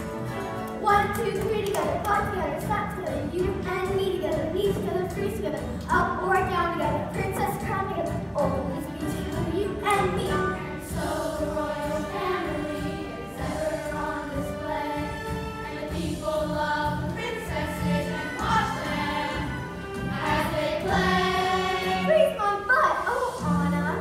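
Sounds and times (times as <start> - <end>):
musical accompaniment: 0.0 - 24.0
children's chorus singing: 8.7 - 23.4.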